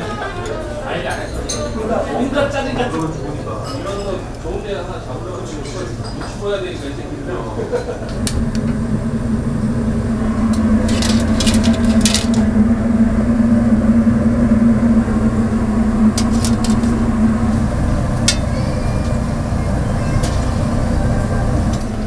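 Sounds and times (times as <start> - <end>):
steady machine hum: 6.5 - 22.0
low rumble: 8.1 - 22.0.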